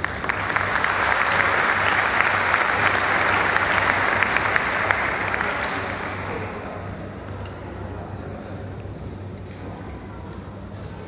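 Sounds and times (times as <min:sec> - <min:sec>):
audience applause: 0:00.0 - 0:07.0.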